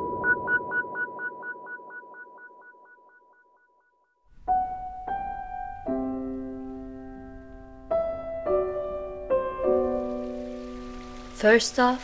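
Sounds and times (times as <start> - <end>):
slow piano music: 4.3 - 11.6.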